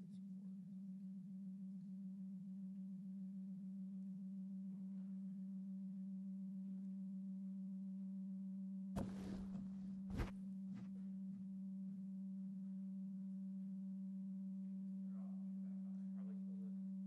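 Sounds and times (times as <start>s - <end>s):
brief rustle: 9.0s - 10.9s
steady low hum: 9.0s - 11.0s.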